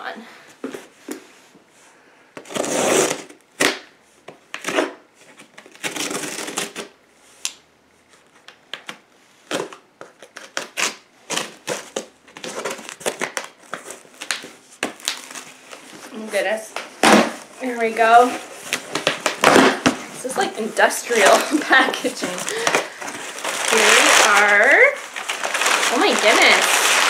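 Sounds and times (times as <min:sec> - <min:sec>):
scissors cutting packing tape: 0:05.6 - 0:06.9, 0:08.8 - 0:13.5.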